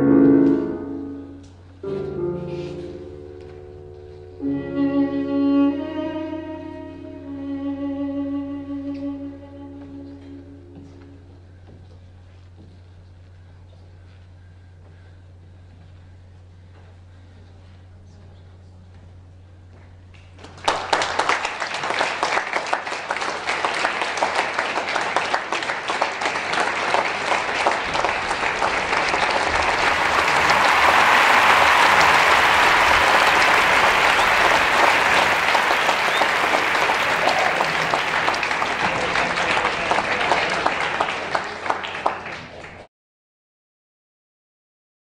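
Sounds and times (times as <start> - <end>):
audience applauding: 20.4 - 42.9.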